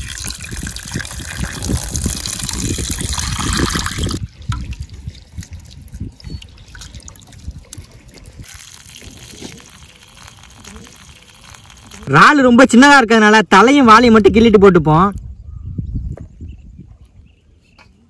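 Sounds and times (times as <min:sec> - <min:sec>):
water dripping: 0:00.0 - 0:12.2
water splashing and trickling: 0:00.0 - 0:12.9.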